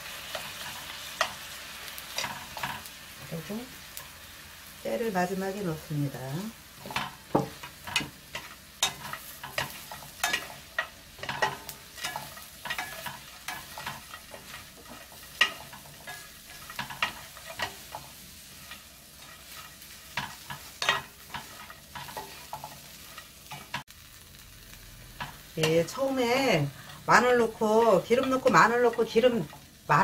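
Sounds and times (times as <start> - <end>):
dry food rustling in pan: 0.0 - 30.0
wooden spatulas scraping metal pan: 6.8 - 23.8.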